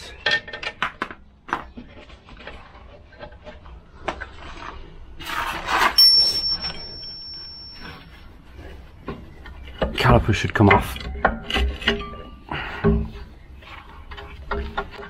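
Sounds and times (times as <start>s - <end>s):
high metallic ringing tone: 6.0s - 8.4s.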